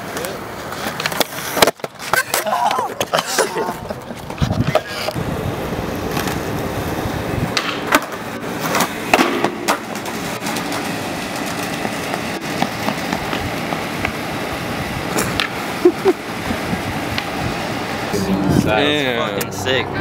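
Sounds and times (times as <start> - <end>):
skateboard clacking on ground: 0.0 - 5.2, 6.0 - 6.7, 7.5 - 14.2, 15.2 - 15.6
skateboard wheels rolling on concrete: 0.0 - 20.0.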